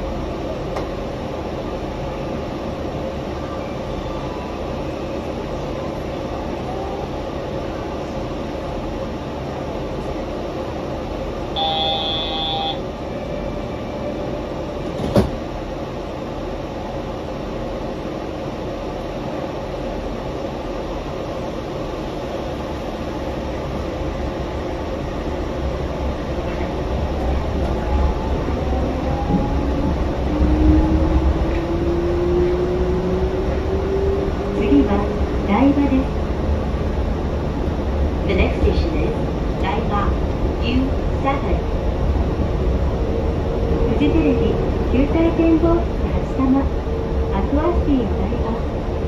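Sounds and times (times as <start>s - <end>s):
train running rumble: 0.0s - 49.0s
electronic tone: 11.6s - 12.8s.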